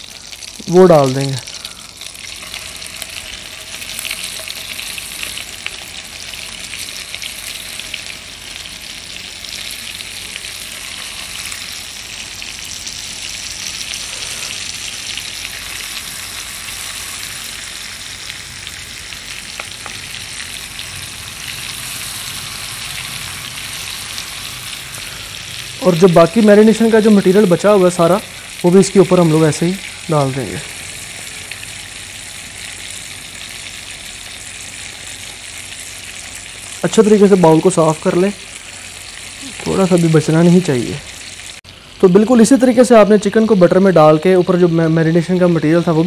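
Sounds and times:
chicken sizzling in butter: 0.0 - 46.0.

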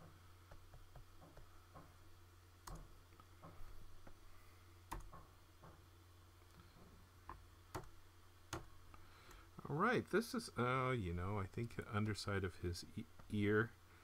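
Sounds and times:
faint low hum: 0.0 - 14.0
stylus tapping on tablet: 0.5 - 1.9.

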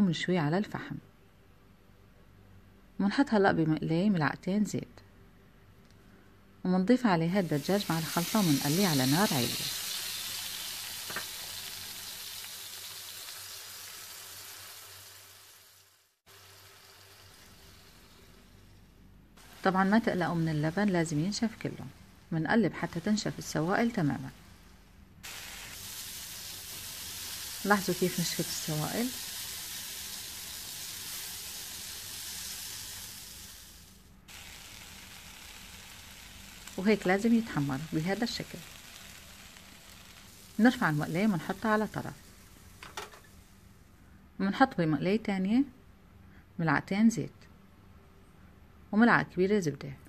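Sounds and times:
chicken sizzling in a frying pan: 7.4 - 43.8.

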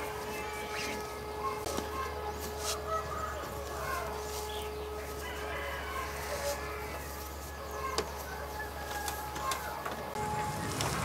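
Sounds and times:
chicken calls: 0.0 - 11.0
rooster crowing: 2.8 - 4.1, 5.1 - 10.3.

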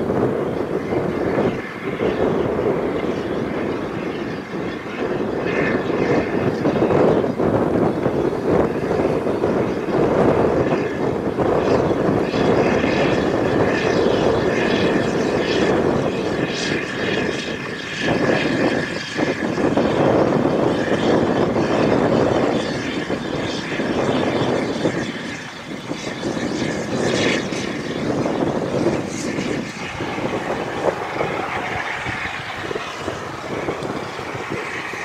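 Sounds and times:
steam train rushing: 26.8 - 35.0.

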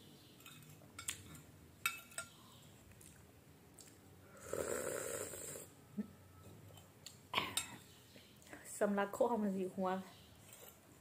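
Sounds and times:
metal spoon clinking glass bowl: 0.4 - 2.4.

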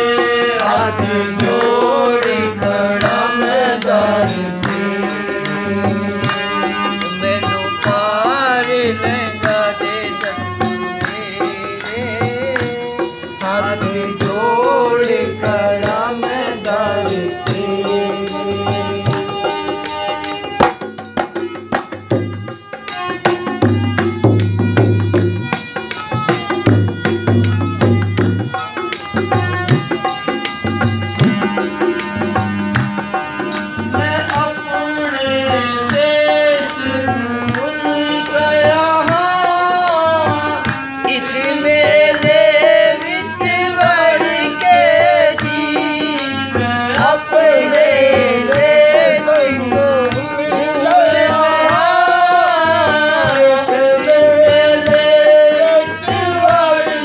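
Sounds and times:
person singing: 0.0 - 20.1, 33.8 - 57.0
hand drum beat: 0.0 - 34.8, 35.5 - 56.8
jingling rattle percussion: 1.5 - 57.0.

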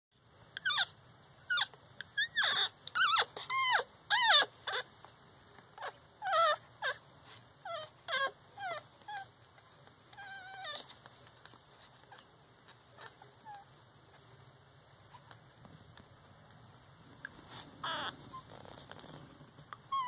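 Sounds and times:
puppies whimpering and squeaking: 0.6 - 4.9, 5.8 - 13.8, 17.2 - 20.0.

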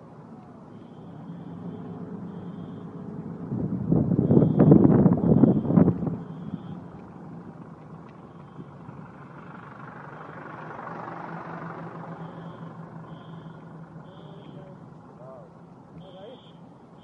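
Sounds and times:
car engine hum: 0.0 - 17.0
road noise: 0.0 - 17.0
truck passing: 0.0 - 17.0
short high beeps: 12.1 - 14.7.

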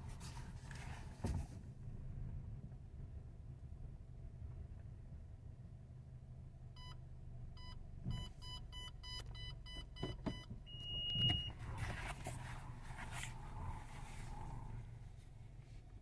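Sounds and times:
car engine idling: 0.0 - 16.0
thump: 1.2 - 1.6
parking sensor beeping: 6.8 - 11.8.

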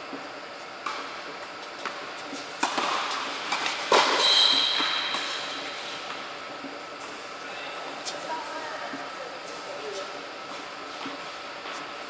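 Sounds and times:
tennis ball hit by racket: 2.6 - 5.4
brief high squeak: 4.2 - 5.1.

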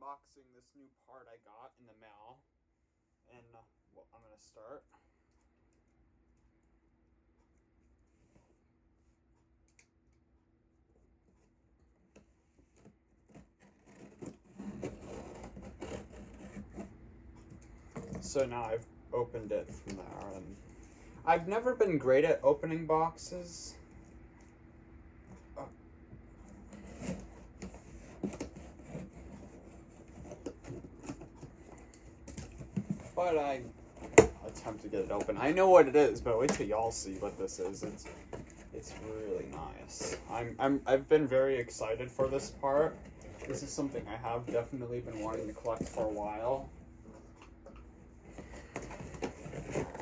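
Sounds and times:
cardboard box rubbing and scraping: 13.2 - 17.0, 26.5 - 46.6, 48.2 - 50.0
scissor blade scraping tape: 13.3 - 16.9.

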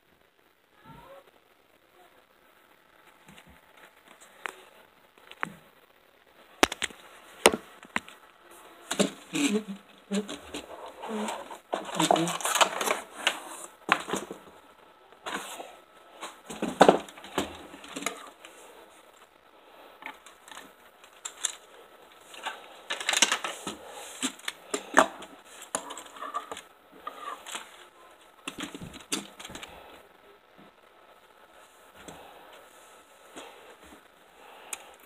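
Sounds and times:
plastic toy parts clicking and rattling: 11.2 - 14.3, 20.0 - 21.6, 22.2 - 26.6.

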